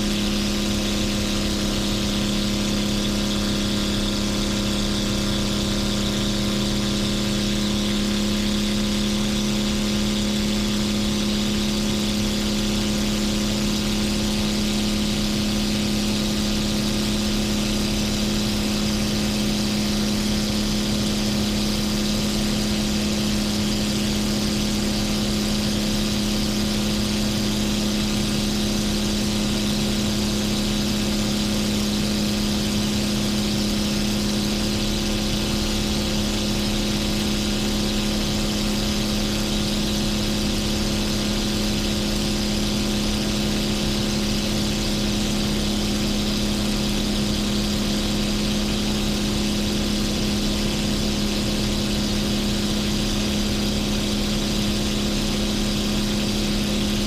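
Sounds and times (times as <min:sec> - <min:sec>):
aircraft engine droning: 0:00.0 - 0:57.0.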